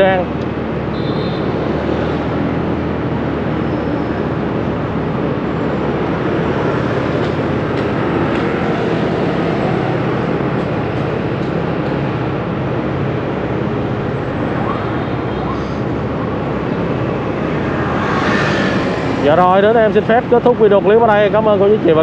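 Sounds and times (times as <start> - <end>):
city traffic rumble: 0.0 - 22.0.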